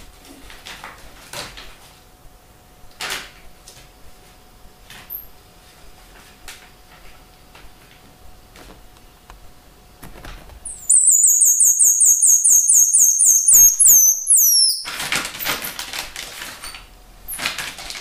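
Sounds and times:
monkey high chirps: 10.7s - 14.9s.

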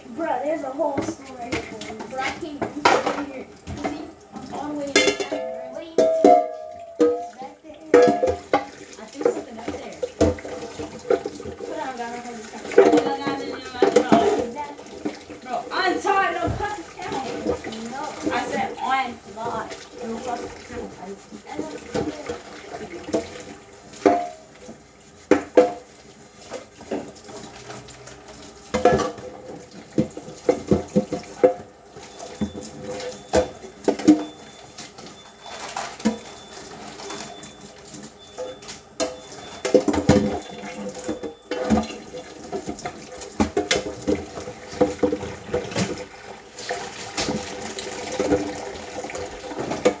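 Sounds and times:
tap water running: 0.0s - 50.0s
dishes clinking: 4.8s - 11.6s, 12.6s - 15.2s, 21.6s - 24.5s, 28.7s - 46.1s.

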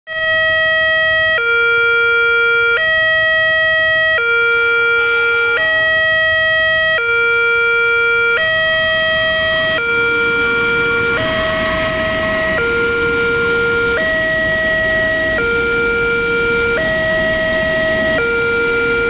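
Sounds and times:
two-tone crossing alarm: 0.1s - 19.0s.

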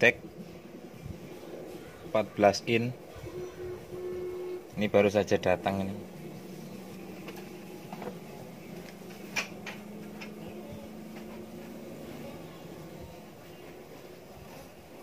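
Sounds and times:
faint low hum: 0.0s - 15.0s
television speaker hiss: 0.0s - 15.0s.

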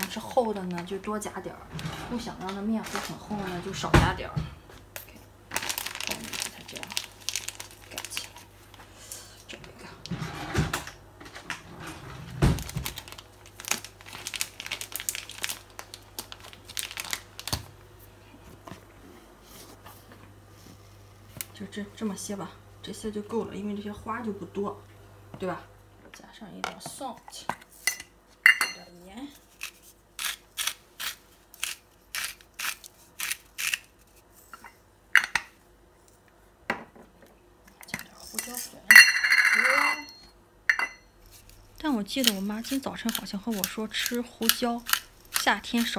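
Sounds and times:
plastic bag crinkling: 5.5s - 8.8s, 12.6s - 17.7s
pepper mill grinding: 29.4s - 34.2s, 41.2s - 45.9s
salt mill grinding: 29.6s - 34.1s, 41.3s - 45.9s.

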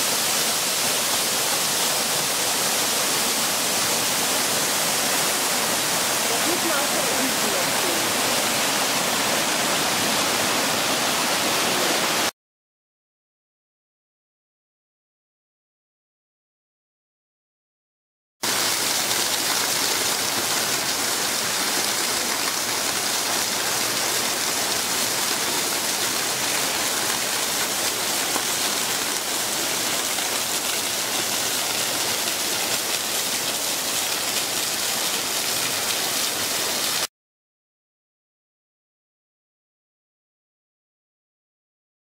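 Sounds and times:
fountain water splashing: 0.0s - 12.3s, 18.4s - 37.1s.

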